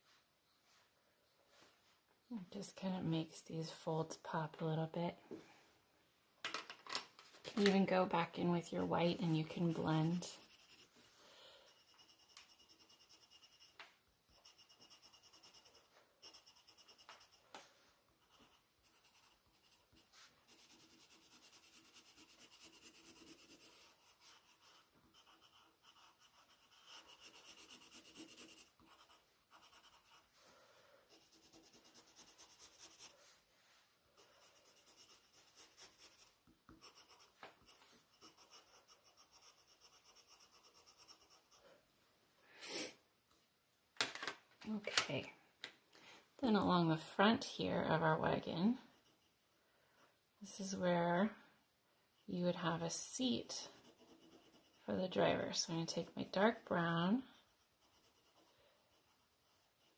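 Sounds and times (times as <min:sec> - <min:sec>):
colored pencil scratching on paper: 0:07.6 - 0:41.8, 0:46.5 - 0:49.4, 0:50.4 - 0:51.0, 0:52.2 - 0:59.9.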